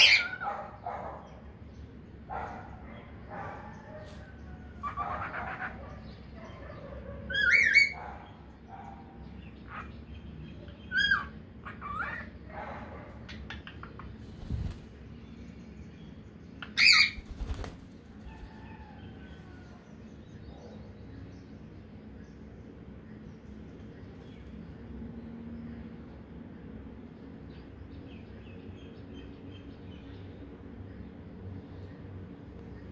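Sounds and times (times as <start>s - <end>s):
wing flap: 14.2s - 15.0s, 17.2s - 18.5s.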